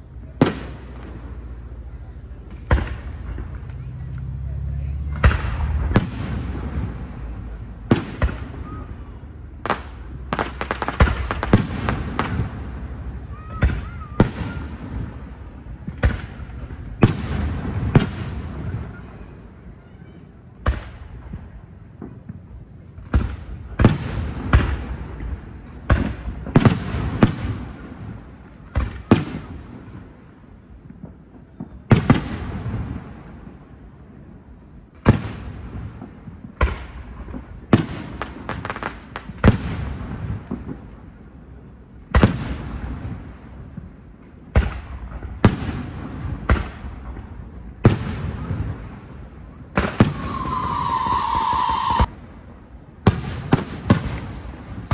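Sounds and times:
firework shells bursting: 49.8s - 52.2s.

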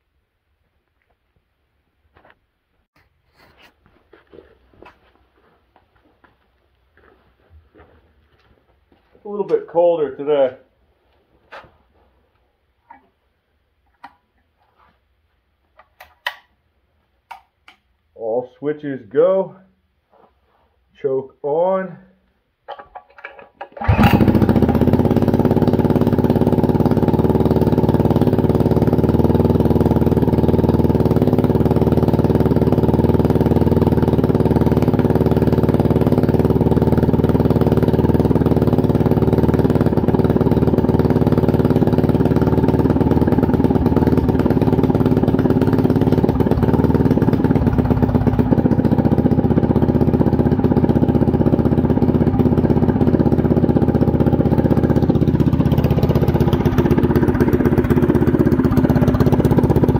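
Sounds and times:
engine idling: 23.8s - 59.9s.

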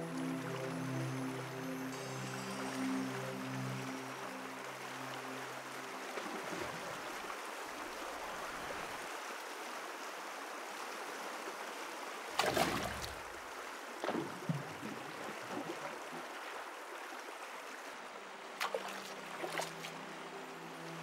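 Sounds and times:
river current rushing: 0.0s - 21.0s
water splashing: 12.3s - 17.4s, 18.6s - 20.0s.

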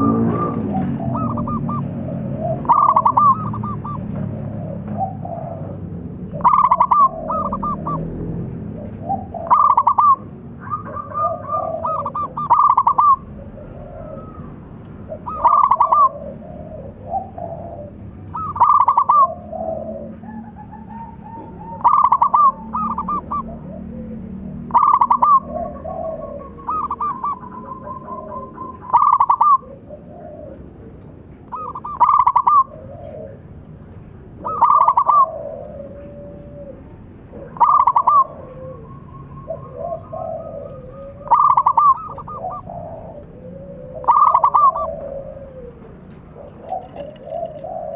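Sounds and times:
dove cooing trilled song: 0.0s - 47.9s
soft low coos: 34.4s - 47.9s.

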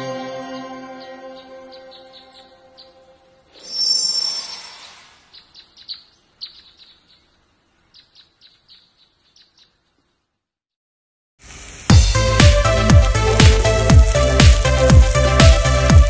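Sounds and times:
short bird chirps: 1.4s - 10.0s
shimmering burst with ringing tones: 3.5s - 5.3s.

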